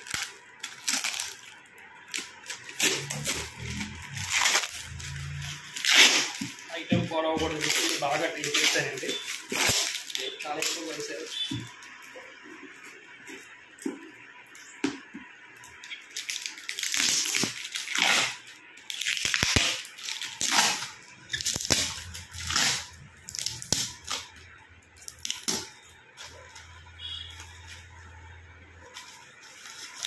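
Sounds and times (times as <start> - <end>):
packing tape peeled and torn: 0.0 - 6.7, 7.5 - 11.1, 16.1 - 24.4.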